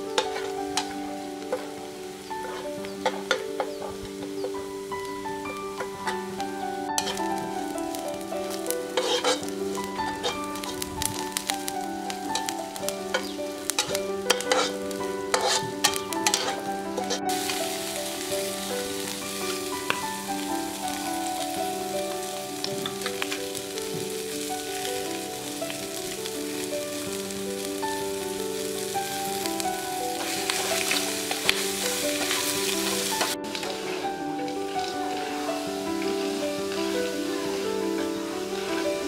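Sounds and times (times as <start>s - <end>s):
oil sizzling: 0.0s - 39.0s
spatula scraping wok: 0.2s - 0.9s, 2.4s - 4.4s, 7.0s - 7.3s, 8.6s - 11.5s, 12.3s - 20.0s, 30.2s - 34.2s.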